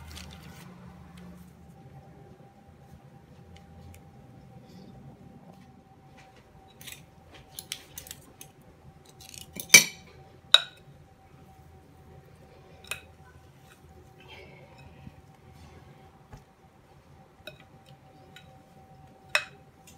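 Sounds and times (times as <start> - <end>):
kitchenware clinking: 9.2 - 10.8.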